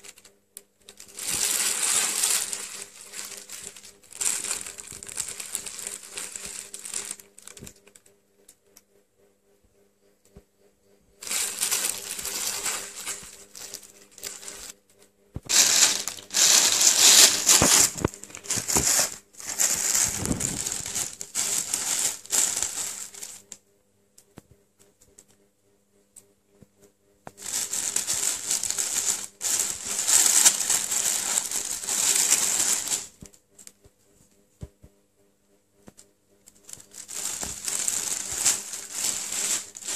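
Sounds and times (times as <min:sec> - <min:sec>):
plastic bag crinkling: 0:00.0 - 0:08.1, 0:11.2 - 0:14.7, 0:15.5 - 0:23.5, 0:27.4 - 0:33.3, 0:36.6 - 0:39.9.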